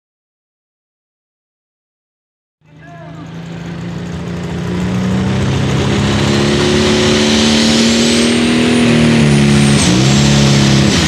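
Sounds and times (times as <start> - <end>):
diesel tractor engine running hard: 2.6 - 11.0.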